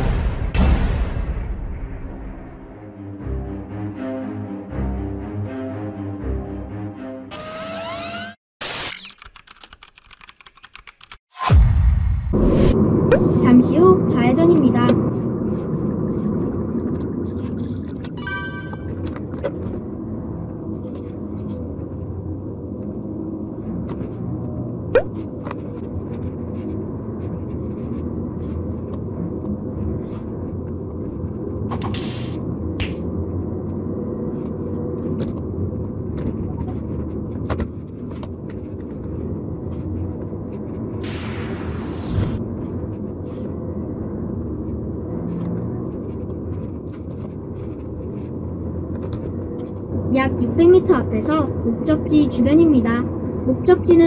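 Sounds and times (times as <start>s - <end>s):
car tyres and engine rumble: 12.3s - 18.2s, 18.8s - 54.0s.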